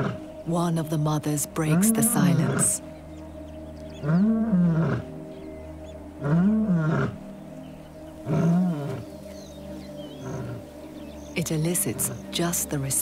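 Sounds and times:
lioness calling: 0.0s - 2.8s, 3.9s - 5.5s, 6.1s - 7.3s, 8.1s - 12.4s.

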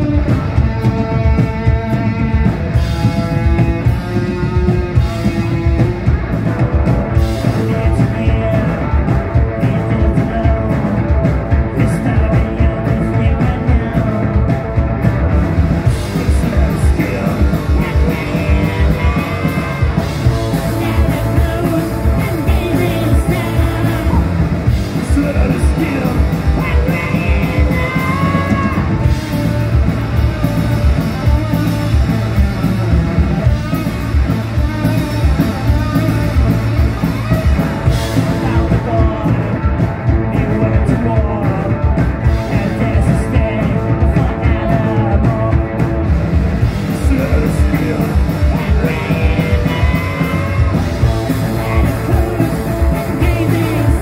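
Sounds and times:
drums: 0.0s - 54.0s
electric guitar: 0.0s - 54.0s
person singing: 7.4s - 14.6s, 15.9s - 29.8s, 36.0s - 46.0s, 46.8s - 54.0s.

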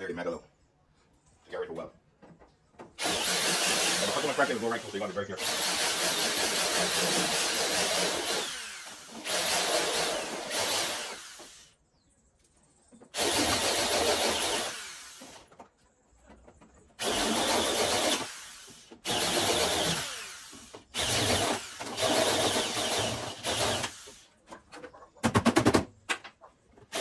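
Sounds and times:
electric drill cutting sheet metal: 3.0s - 11.7s, 13.2s - 15.4s, 17.0s - 24.2s.

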